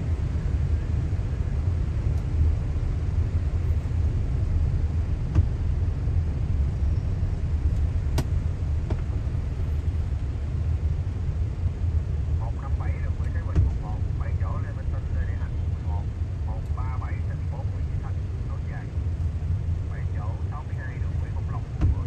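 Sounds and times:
car engine and tyres on wet road: 1.9 - 11.1.

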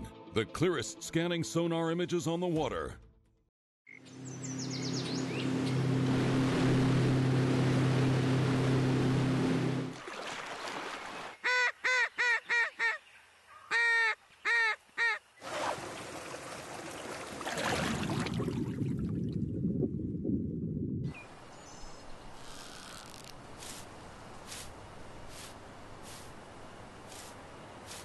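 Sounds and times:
waterfowl calls: 11.3 - 15.3.

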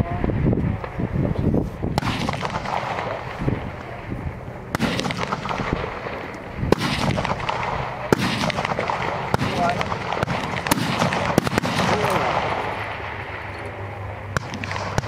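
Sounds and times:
rifle shots: 1.9 - 4.0, 4.7 - 13.5, 14.2 - 15.0.

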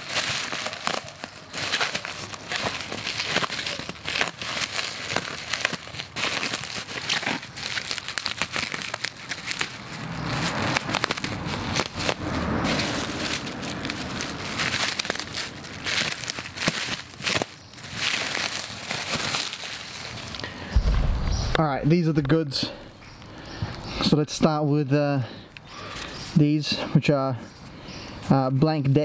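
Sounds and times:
bubble wrap crinkling and crackling: 0.0 - 21.8
low rumble: 20.7 - 22.3.

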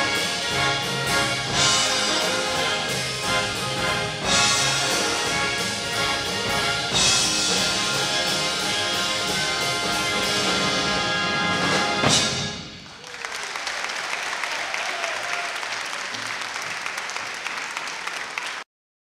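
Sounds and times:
big band playing: 0.0 - 13.9
audience applauding: 12.7 - 18.7.

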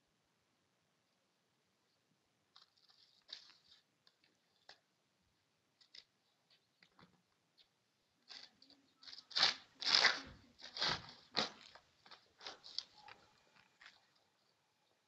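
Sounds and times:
dog tearing paper: 8.3 - 13.2.

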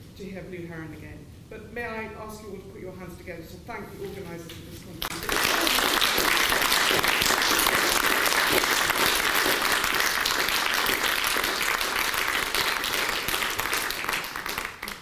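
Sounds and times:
audience applauding: 5.1 - 15.0.

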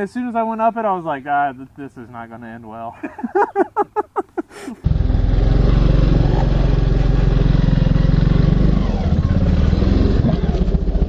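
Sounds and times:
dirt bike engine running: 4.8 - 11.0.

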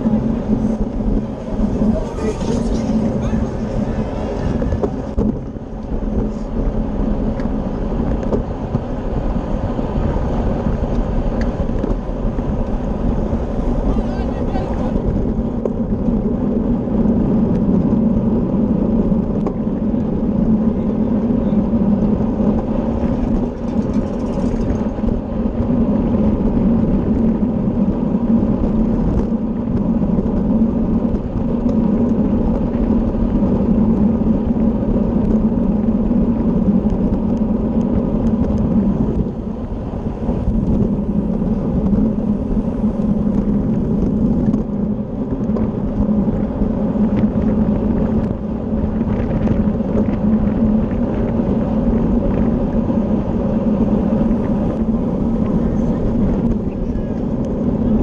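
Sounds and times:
wind buffeting microphone: 0.0 - 58.0.

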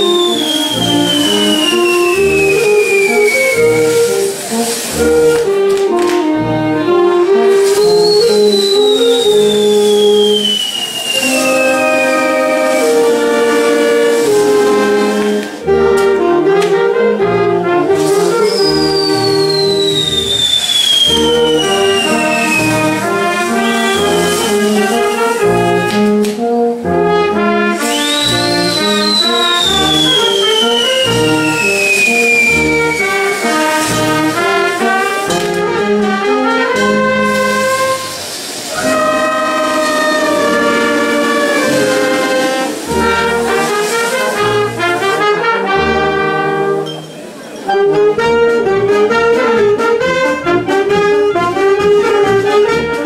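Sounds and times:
high whistling tone gliding down: 0.0 - 4.1, 7.7 - 13.3, 18.3 - 24.7, 27.8 - 33.9, 38.0 - 43.1
brass band playing: 0.0 - 53.0.

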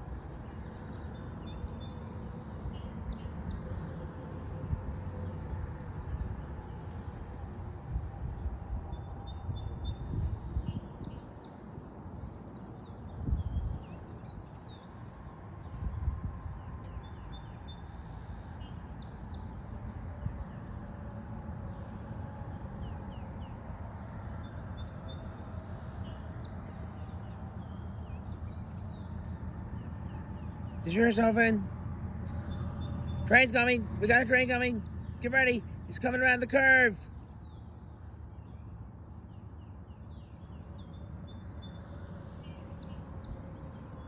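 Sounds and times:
wind rumbling on microphone: 0.0 - 34.0.

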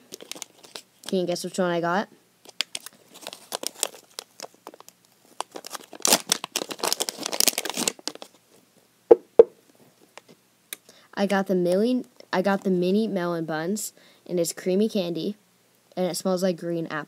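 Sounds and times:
plastic bag crinkling and tearing: 0.0 - 1.2, 2.4 - 8.4
short sharp knocks: 9.1 - 9.6.

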